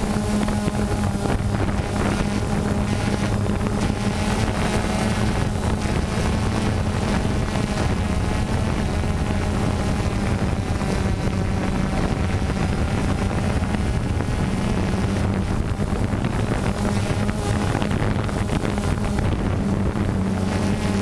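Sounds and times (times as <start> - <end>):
drone propellers humming: 0.0 - 21.0
wind on microphone: 0.0 - 21.0.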